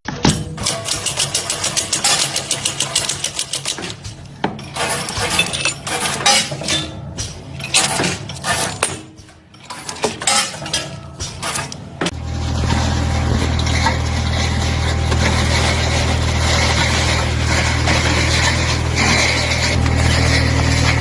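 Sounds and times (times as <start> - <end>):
steel rollers clinking and rattling: 0.2 - 21.0
rapid metallic clicks: 0.6 - 4.2
low engine hum: 12.2 - 21.0.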